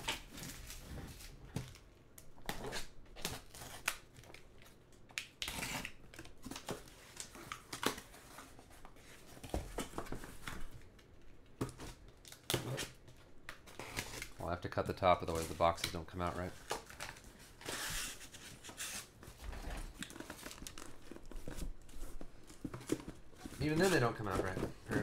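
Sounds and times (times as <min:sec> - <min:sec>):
cardboard taps scrapes and rustles: 0:17.7 - 0:25.0
cardboard scraping rasp: 0:22.6 - 0:25.0.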